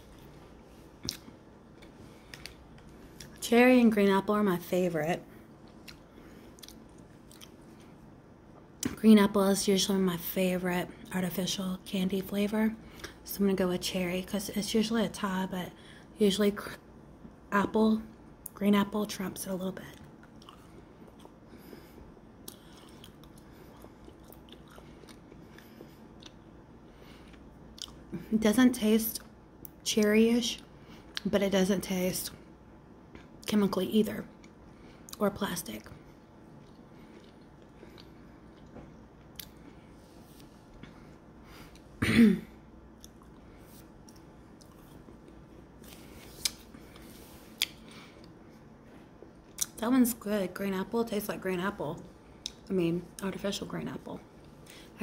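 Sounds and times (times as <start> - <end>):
chewing gummy candy: 5.6 - 8.0, 19.8 - 21.7, 22.4 - 26.6, 27.2 - 28.2, 35.8 - 39.8
person clearing throat: 42.0 - 42.6.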